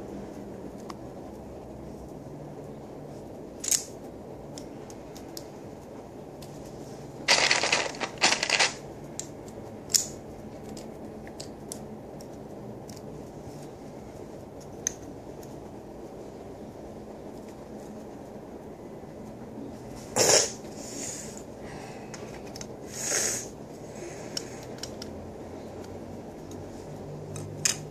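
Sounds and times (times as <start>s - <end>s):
plastic bricks rattling scrape: 7.3s - 8.8s
plastic bricks clicking: 7.3s - 9.3s.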